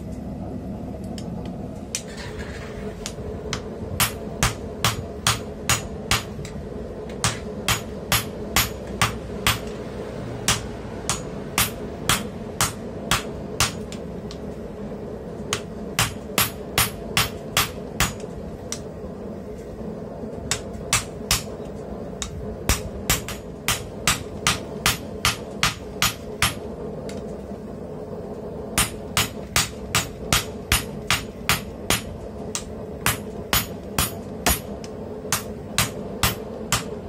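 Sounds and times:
hammer striking metal on anvil: 3.0 - 9.8, 10.4 - 14.0, 15.5 - 18.9, 20.5 - 21.6, 22.2 - 26.7, 28.8 - 37.0.

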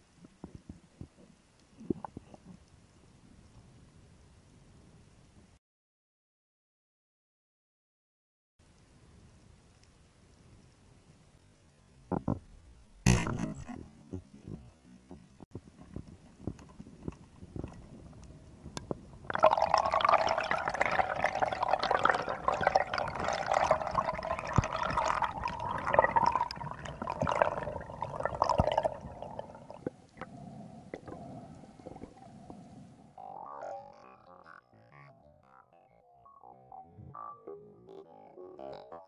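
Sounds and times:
underwater clicks and crackles: 0.0 - 5.5, 11.4 - 34.4
faint underwater hum: 8.6 - 35.1
bubbling rushing water: 19.3 - 30.3, 30.9 - 32.6.

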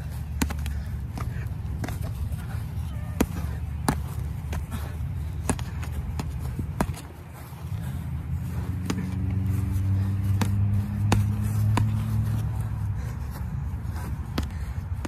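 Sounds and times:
low vehicle engine hum: 0.0 - 15.0
boxing gloves smacking: 10.4 - 12.2.

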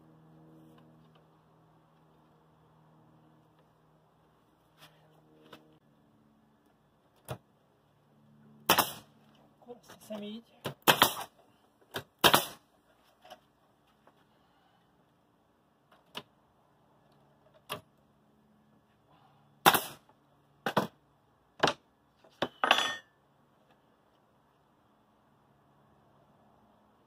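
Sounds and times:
nail gun shots: 8.7 - 9.1, 10.7 - 11.3, 12.0 - 12.7, 19.6 - 20.1.

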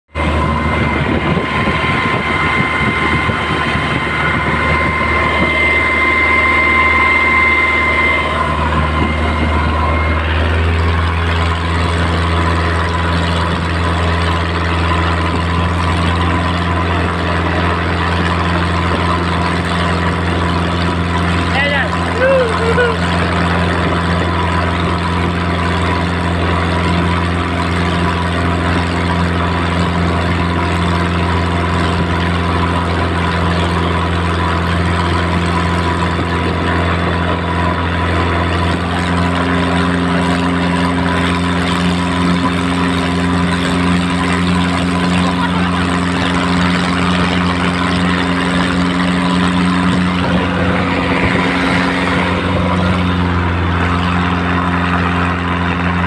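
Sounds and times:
wind: 0.0 - 56.0
boat diesel engine drone: 0.1 - 56.0
water rushing: 0.2 - 56.0.

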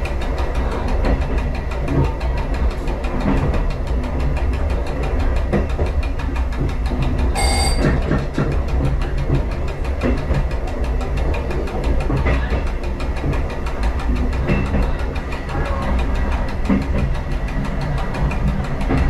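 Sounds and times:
wheels rumbling on rails: 0.0 - 19.0
brief high-pitched tone: 7.4 - 8.0.

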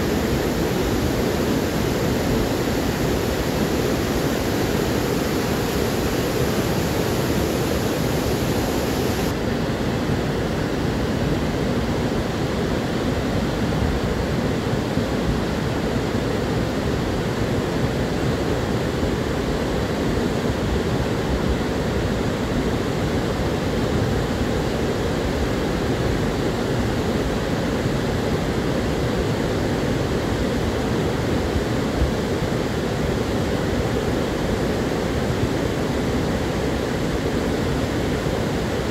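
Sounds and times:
river rushing: 0.0 - 9.5.

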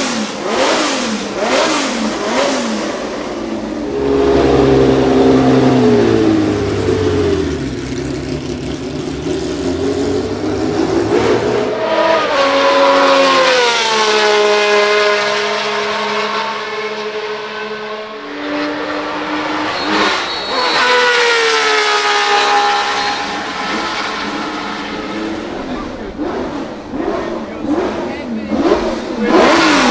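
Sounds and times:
racing engine accelerating: 0.0 - 29.9.

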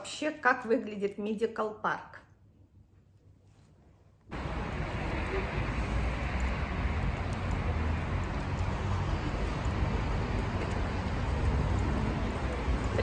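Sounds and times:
road traffic rumble: 4.3 - 13.0.

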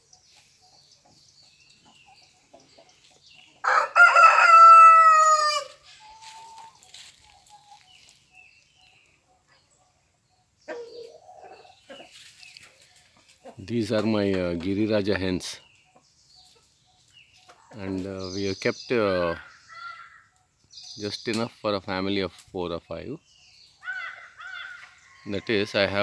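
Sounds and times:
hens clucking: 0.0 - 8.3, 10.7 - 16.8
rooster crowing: 3.6 - 6.4.

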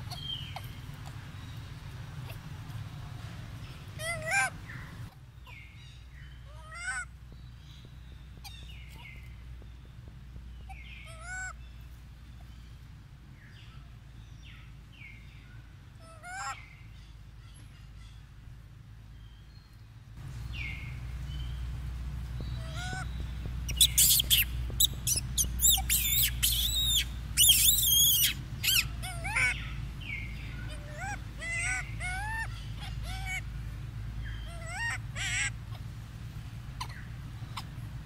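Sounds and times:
low rumble: 18.2 - 38.0
monkey squeals and screeches: 23.7 - 29.7, 30.7 - 33.4, 34.5 - 35.5.

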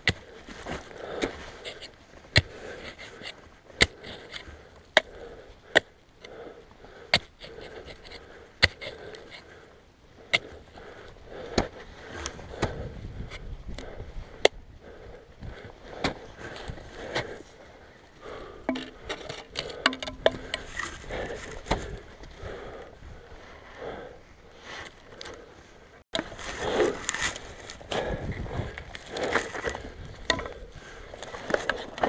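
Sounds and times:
snow crunching and scraping: 0.0 - 4.7, 20.6 - 22.4, 24.5 - 32.0.

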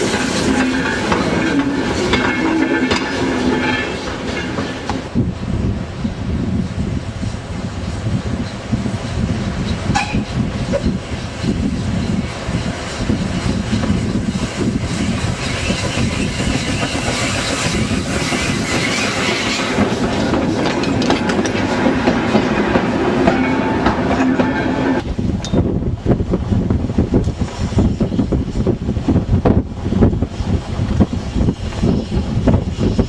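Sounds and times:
steam locomotive working past: 0.0 - 26.4.

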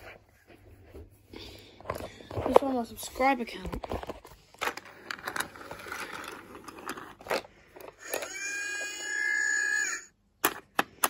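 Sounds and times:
plastic toy clicks and scrapes: 3.8 - 8.9.

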